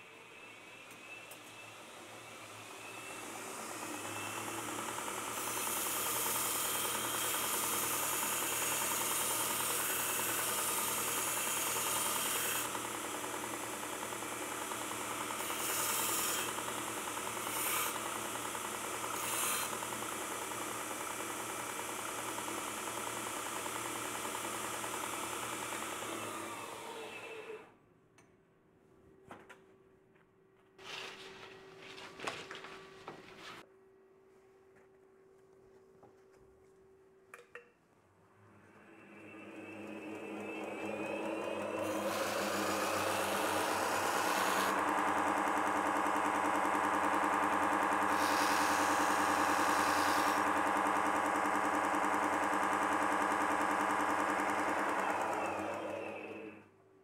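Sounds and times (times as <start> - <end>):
belt grinder running: 3.2 - 27.6, 39.4 - 56.6.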